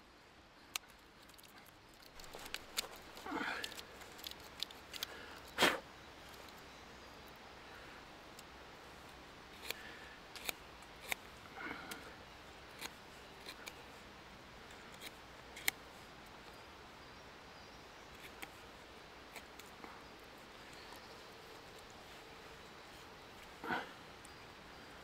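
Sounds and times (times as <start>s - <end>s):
knife scraping wood shaving: 12.7s - 13.8s.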